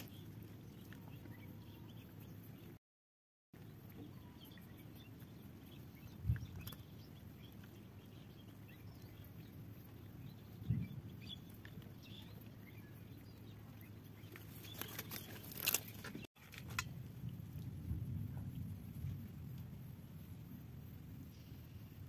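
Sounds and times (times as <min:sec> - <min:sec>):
steady low rumble: 0:16.8 - 0:22.0.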